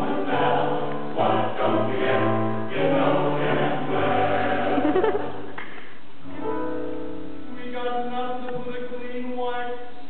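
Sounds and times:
male choir singing: 0.0s - 5.4s.

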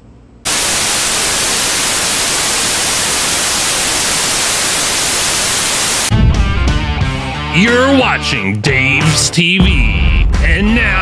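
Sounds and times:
television static hiss: 0.4s - 6.1s
music: 6.1s - 11.0s.

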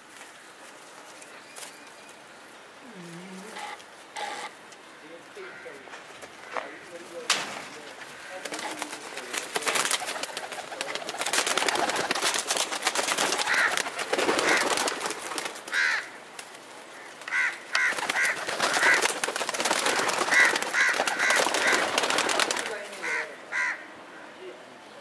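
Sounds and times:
pigeon wing flaps and rustling: 7.3s - 23.1s.

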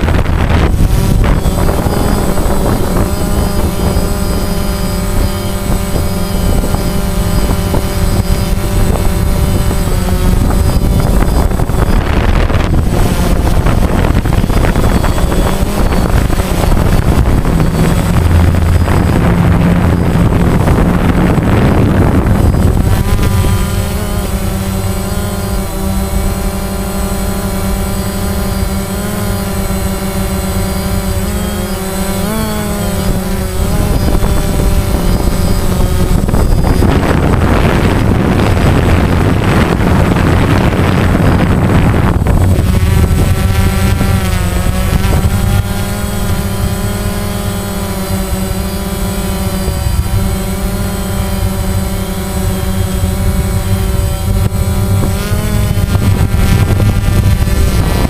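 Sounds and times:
loud rushing noise: 0.0s - 26.3s
drone motors whining: 0.0s - 58.0s.

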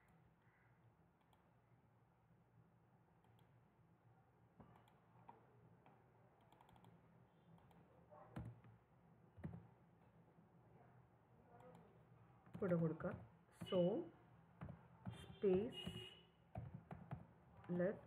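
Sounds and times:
mouse and keyboard clicks: 6.4s - 7.0s.

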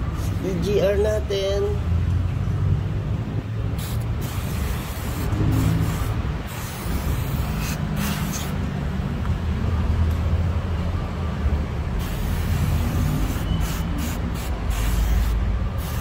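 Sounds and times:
aerosol spray hissing: 12.0s - 16.0s.

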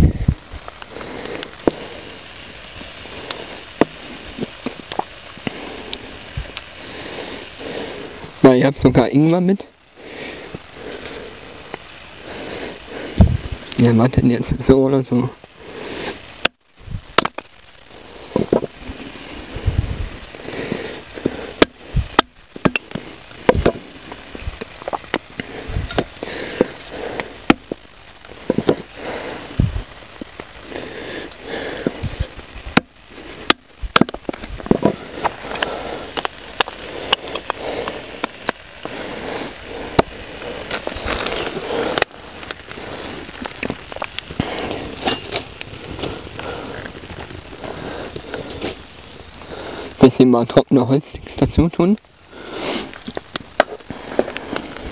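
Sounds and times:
campfire crackling: 0.0s - 54.9s
dry sticks snapping: 30.1s - 48.8s.

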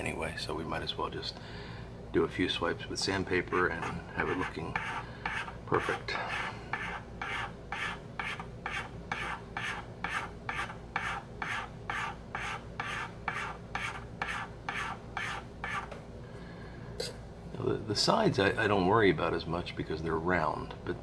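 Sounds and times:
hand file rasping on pipe bowl: 3.5s - 15.9s.

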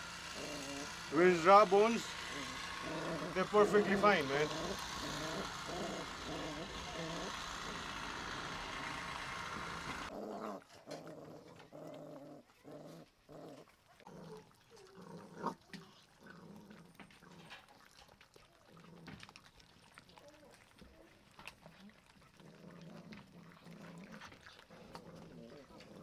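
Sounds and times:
puppies growling: 0.0s - 26.0s
wet chewing clicks: 13.5s - 26.0s.

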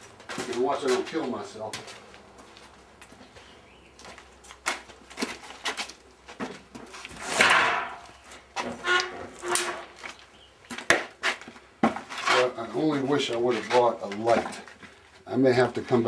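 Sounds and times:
footsteps: 0.0s - 16.0s
knocks on wooden racks: 7.3s - 8.0s
scraping rustle: 11.2s - 16.0s.

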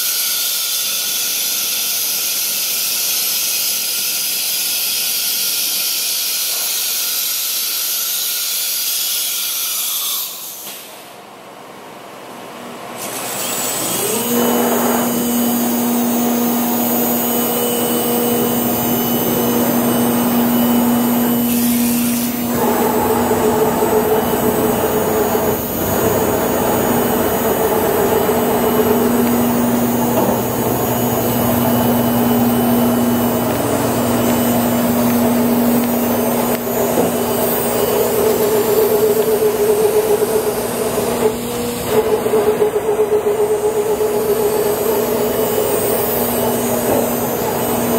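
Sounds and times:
rush of air and machine noise: 12.8s - 47.9s
cnc router whine: 13.1s - 47.9s.

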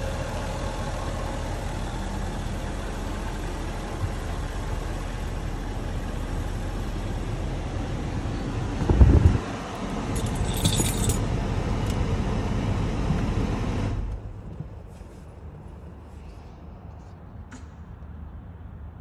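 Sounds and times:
car engine idling: 0.0s - 14.7s
keys jingling: 10.2s - 11.2s.

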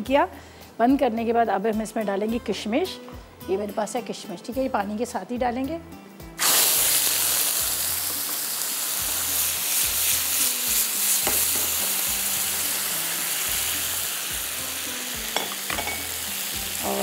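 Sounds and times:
water hissing in hot oil: 6.4s - 17.0s.

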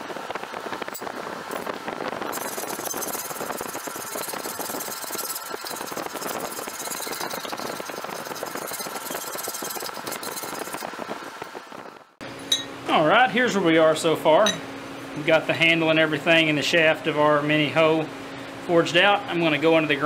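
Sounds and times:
file rasping on steel: 2.3s - 10.9s.

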